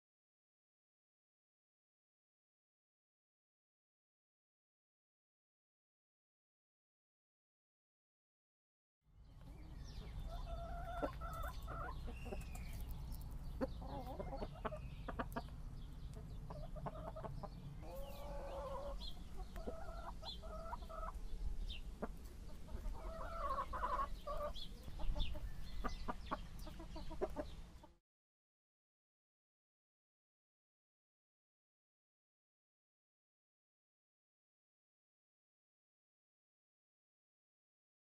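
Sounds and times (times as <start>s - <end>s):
chickens clucking: 9.4s - 28.0s.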